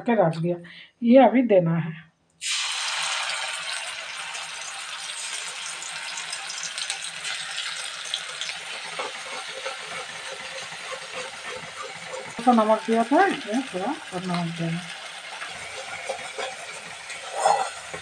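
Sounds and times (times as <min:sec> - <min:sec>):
paste sizzling in hot oil: 0:02.4 - 0:18.0
spatula stirring paste: 0:07.3 - 0:18.0.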